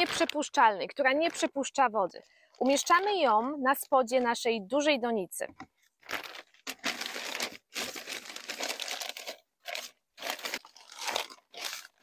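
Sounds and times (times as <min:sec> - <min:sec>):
plastic sheeting crinkling: 0:06.0 - 0:12.0.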